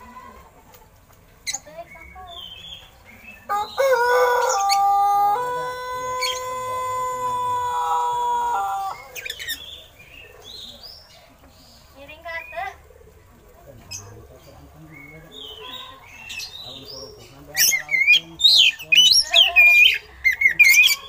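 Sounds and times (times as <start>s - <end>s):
rooster crowing: 3.5s - 9.2s.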